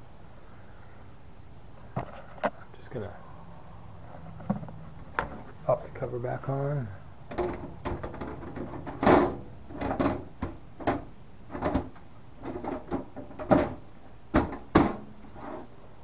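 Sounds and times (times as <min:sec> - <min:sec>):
computer case panel knocks and scrapes: 0:07.3 - 0:15.7.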